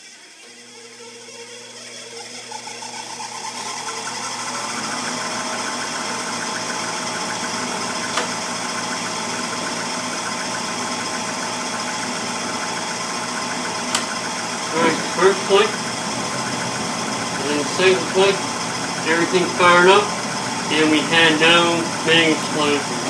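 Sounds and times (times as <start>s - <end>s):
furnace motor pulsing: 0.0s - 23.0s
sharp click: 13.9s - 14.1s.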